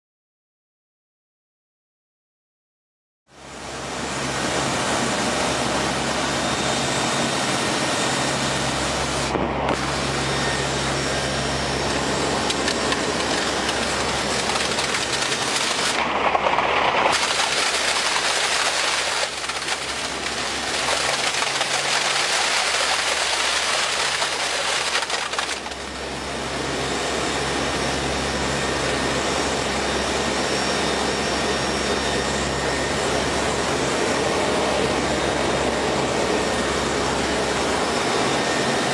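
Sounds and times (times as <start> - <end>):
aircraft engine drone: 3.3 - 38.9.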